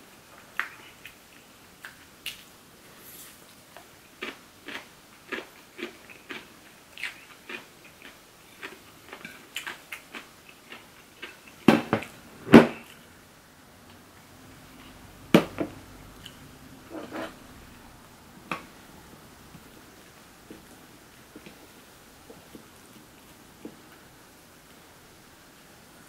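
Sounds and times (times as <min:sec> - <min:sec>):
crunchy chewing: 0:03.8 - 0:11.7.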